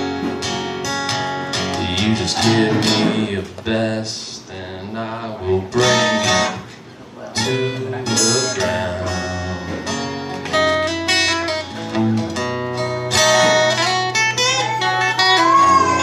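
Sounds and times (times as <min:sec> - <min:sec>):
acoustic guitar strumming: 0:00.0 - 0:16.0
man singing: 0:01.6 - 0:06.7, 0:07.3 - 0:09.9.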